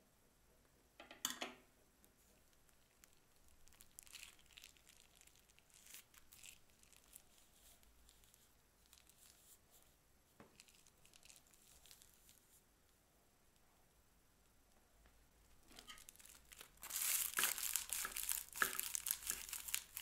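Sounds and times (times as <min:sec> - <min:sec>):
plastic piping bag crinkling: 0:02.1 - 0:12.6, 0:15.4 - 0:20.0.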